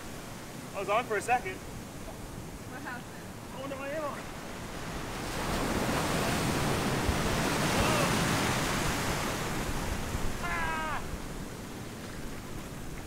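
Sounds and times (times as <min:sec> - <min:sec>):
ocean surf breaking: 0:00.0 - 0:13.0
short high cry falling in pitch: 0:10.4 - 0:11.1.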